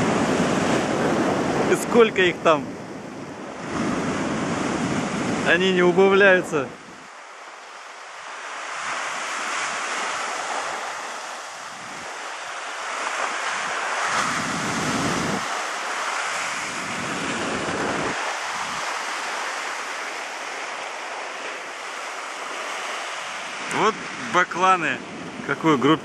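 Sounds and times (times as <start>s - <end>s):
surf washing against rocks: 0.0s - 26.0s
wind buffeting microphone: 0.0s - 26.0s.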